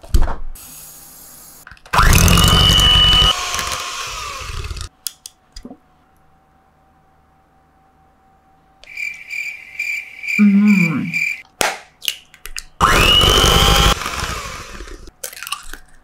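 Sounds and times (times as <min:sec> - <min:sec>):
electric hand mixer whining: 0:02.0 - 0:04.9, 0:12.8 - 0:15.1.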